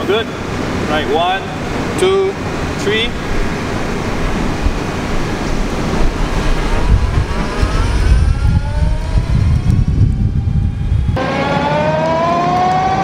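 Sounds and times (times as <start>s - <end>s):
heavy low rumble: 0.1s - 11.2s
electric motor whine rising: 4.5s - 13.0s.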